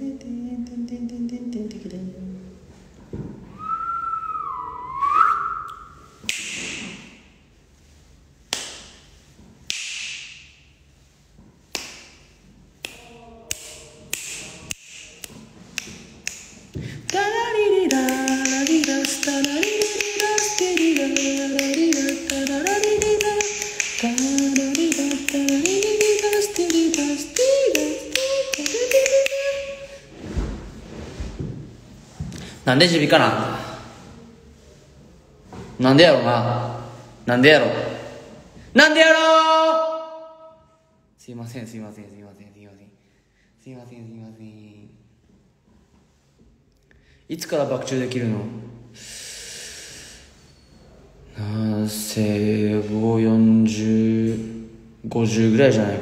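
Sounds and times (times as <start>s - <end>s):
man humming a tune: 0.0s - 2.5s
man whistling: 3.5s - 6.2s
hiss: 49.0s - 50.3s.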